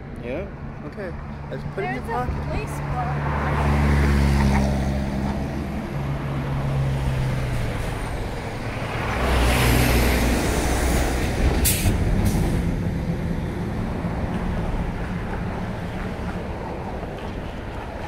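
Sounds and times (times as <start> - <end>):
heavy vehicle engine drone: 0.0 - 18.0
road noise: 0.0 - 18.0.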